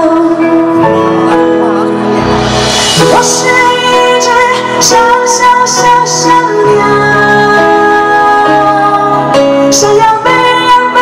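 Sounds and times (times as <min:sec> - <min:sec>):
live band playing pop ballad: 0:00.0 - 0:11.0
cymbal strikes: 0:02.2 - 0:04.1.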